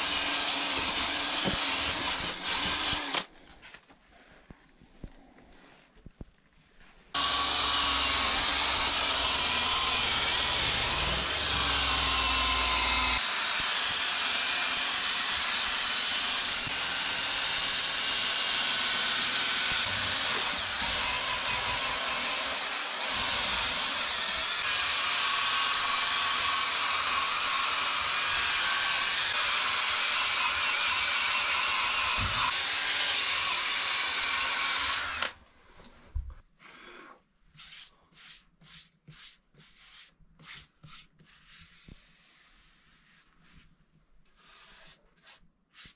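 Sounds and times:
power tool sanding wood: 0.0s - 3.2s, 7.2s - 35.3s.

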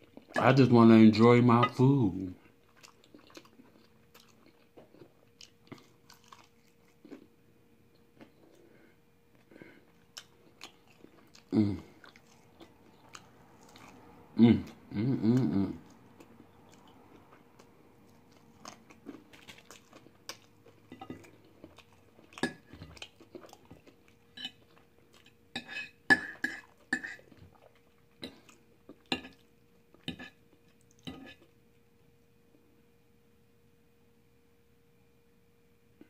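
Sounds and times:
faint steady hum: 0.0s - 36.0s
close-up chewing: 2.4s - 8.7s, 9.3s - 31.6s
fork tapping and scraping on plate: 30.0s - 30.4s.

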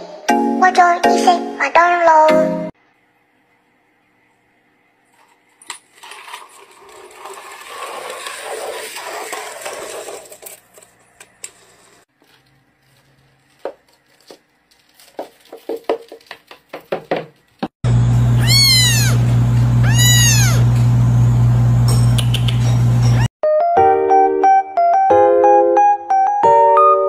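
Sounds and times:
turtle claws tapping on boards: 15.0s - 17.7s.

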